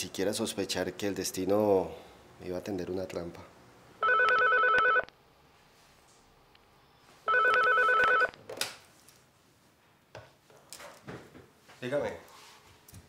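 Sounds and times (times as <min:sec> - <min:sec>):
desk telephone ringing: 0:04.0 - 0:05.1, 0:07.3 - 0:08.4.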